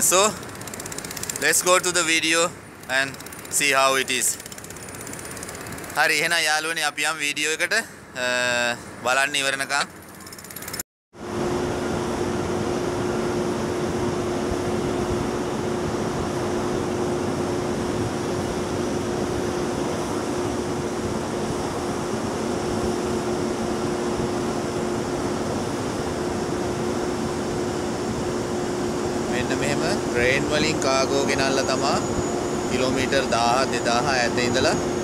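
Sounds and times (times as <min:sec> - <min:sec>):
ship machinery humming: 0:00.0 - 0:10.8.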